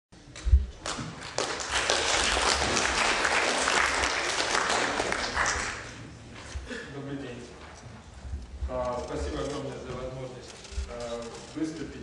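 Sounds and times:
audience applauding: 0:00.8 - 0:06.0.

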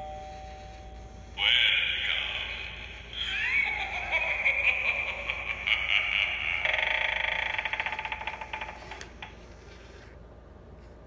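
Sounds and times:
spooky sound effect from small speaker: 0:01.4 - 0:04.6, 0:05.6 - 0:08.7.

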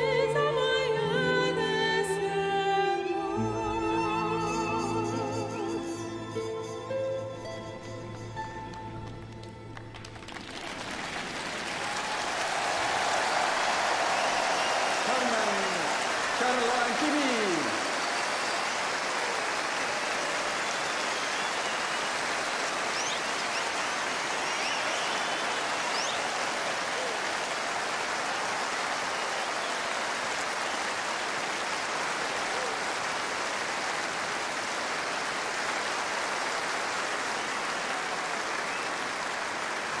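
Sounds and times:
large crowd applauding: 0:08.1 - 0:40.0.

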